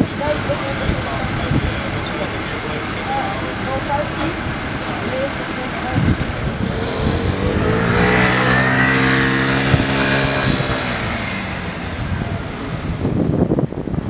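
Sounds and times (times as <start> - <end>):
motor scooter passing: 6.5 - 13.0.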